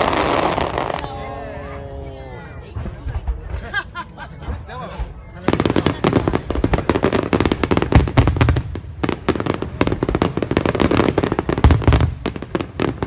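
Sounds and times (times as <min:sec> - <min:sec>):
fireworks bursting: 0:00.0 - 0:13.0
deep firework booms: 0:05.0 - 0:13.0.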